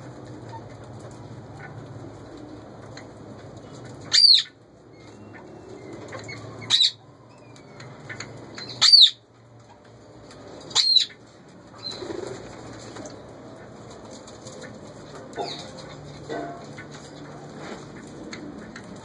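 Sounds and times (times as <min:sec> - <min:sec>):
parakeet calling: 0:04.1 - 0:05.6, 0:06.2 - 0:09.2, 0:10.7 - 0:11.2.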